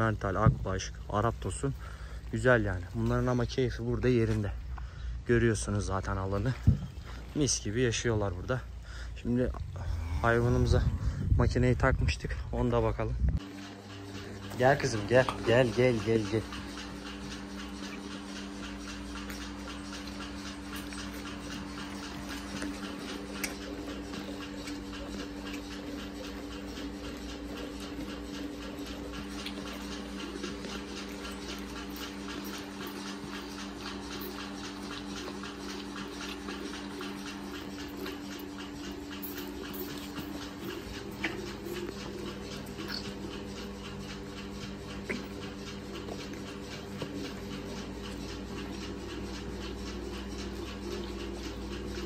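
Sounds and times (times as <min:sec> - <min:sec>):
milking machine humming: 0:00.0 - 0:52.0
calf sucking from bottle: 0:14.3 - 0:51.8.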